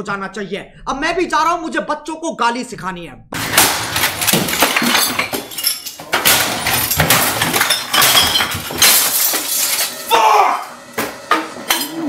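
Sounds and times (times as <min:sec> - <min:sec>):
loud crashes and bangs: 0:03.4 - 0:09.9
glass breaking: 0:03.4 - 0:10.1.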